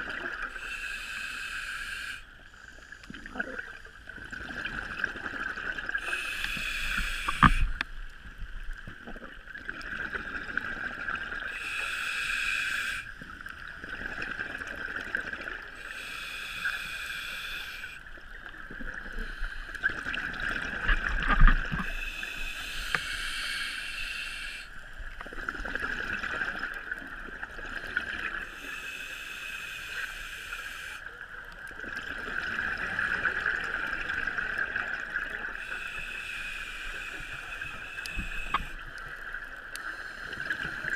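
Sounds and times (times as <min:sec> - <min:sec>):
exhaled bubbles underwater: 0:03.1 - 0:07.8, 0:08.7 - 0:11.5, 0:13.2 - 0:15.8, 0:18.2 - 0:22.9.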